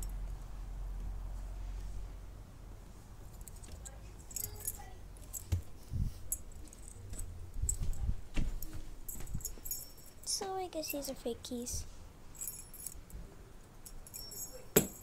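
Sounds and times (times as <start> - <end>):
keys jangling: 3.2 - 8.0, 8.6 - 11.1, 12.4 - 13.2, 13.8 - 15.0.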